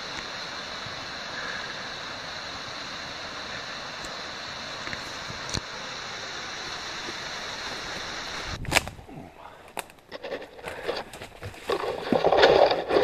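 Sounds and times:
wind on microphone: 8.3 - 9.2
branches crackling and scraping: 8.4 - 13.0.

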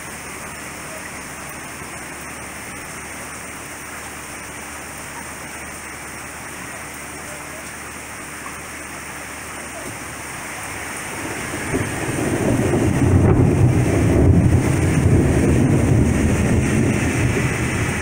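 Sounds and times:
rain hiss: 0.0 - 18.0
thunder rumbling: 10.7 - 18.0.

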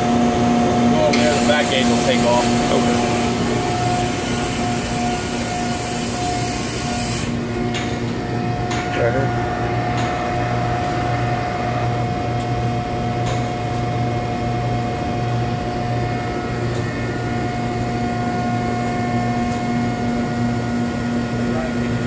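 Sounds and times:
machine hum: 0.0 - 22.0.

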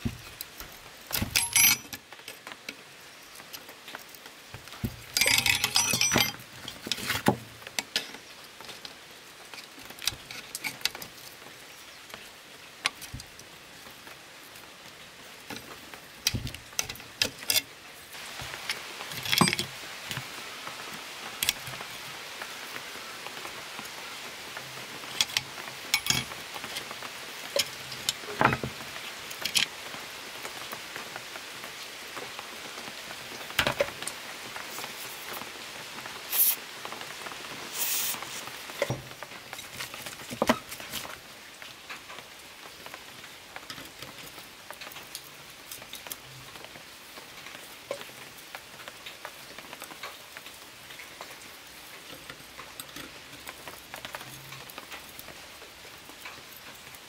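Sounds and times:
rain hissing: 0.0 - 57.0
metallic clinks from hand tools: 1.3 - 2.0, 5.2 - 6.4.

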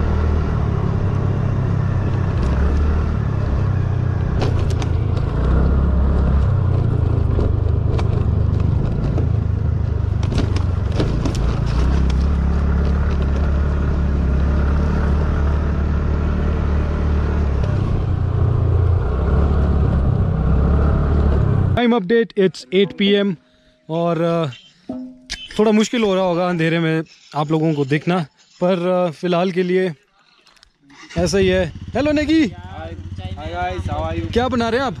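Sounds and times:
sharp knocks from bumps: 10.1 - 13.6
scooter engine running: 31.1 - 35.0.

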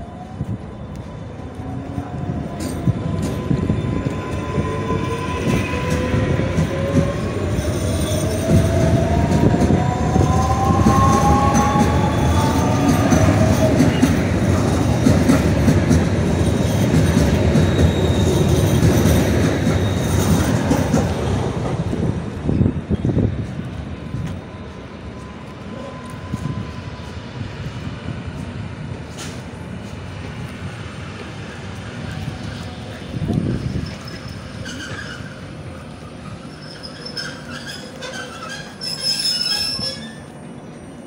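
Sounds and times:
train wheels clattering on rail: 2.2 - 24.5, 28.3 - 36.0.

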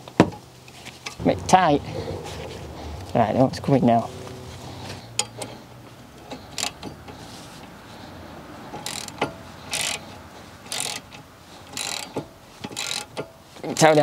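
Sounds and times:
socket ratchet clicking: 6.5 - 7.1, 8.8 - 10.0, 10.7 - 13.3.

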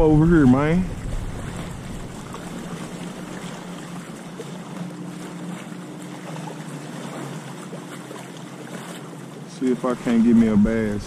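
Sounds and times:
wind on the microphone: 0.0 - 3.6
lake water lapping and sloshing: 0.0 - 11.0.

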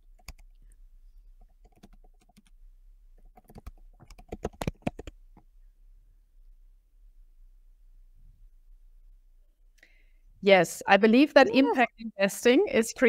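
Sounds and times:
computer keyboard typing: 0.1 - 0.6, 1.4 - 2.5, 3.2 - 5.2.

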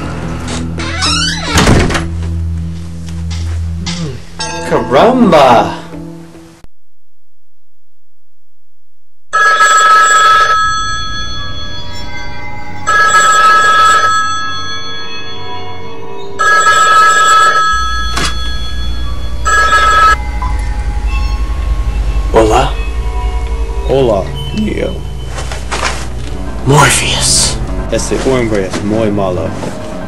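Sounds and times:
telephone ringing: 9.3 - 20.2.

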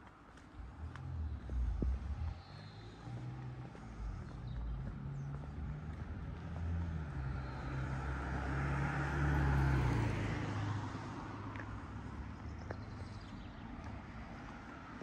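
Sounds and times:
car driving past: 0.6 - 13.4.

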